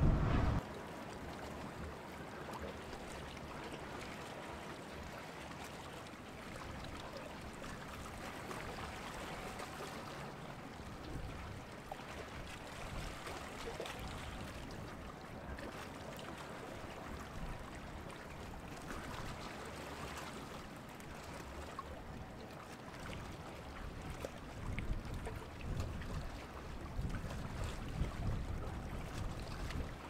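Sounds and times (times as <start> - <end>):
low rumble: 0.0 - 0.6.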